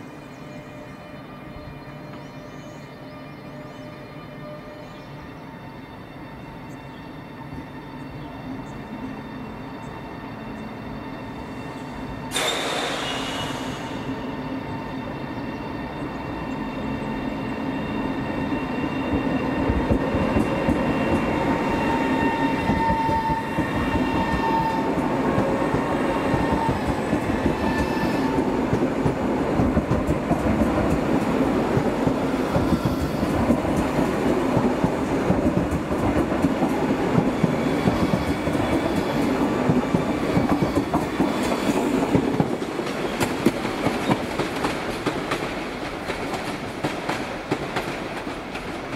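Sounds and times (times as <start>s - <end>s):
electric train wheels rumbling: 7.4s - 48.9s.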